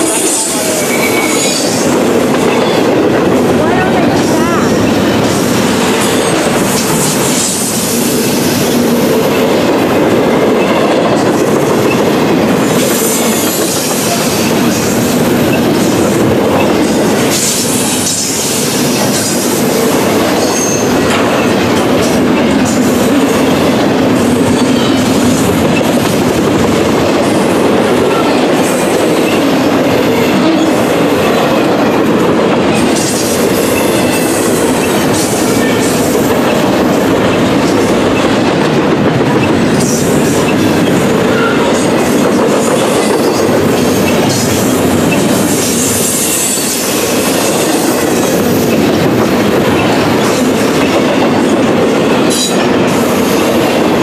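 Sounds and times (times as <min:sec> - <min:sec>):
high wheel squeal: 0:00.0 - 0:01.9, 0:20.4 - 0:21.0
train wheels rumbling and clattering: 0:00.0 - 0:54.0.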